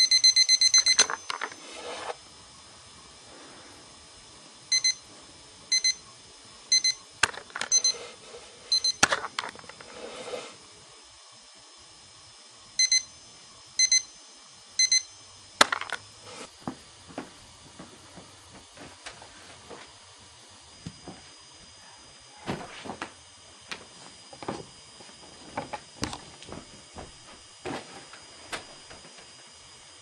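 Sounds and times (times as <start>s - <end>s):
alarm clock double beeps: 0.0s - 1.5s, 4.7s - 5.0s, 5.7s - 6.0s, 6.7s - 7.0s, 7.7s - 8.0s, 8.7s - 9.0s, 12.8s - 13.2s, 13.8s - 14.1s, 14.8s - 15.1s.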